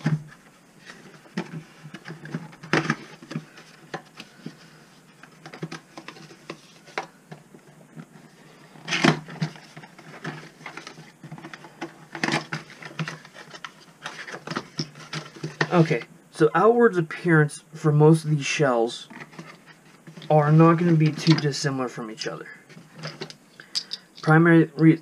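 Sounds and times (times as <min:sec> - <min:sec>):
shells and boxes clicking and knocking: 0:23.0 - 0:24.4.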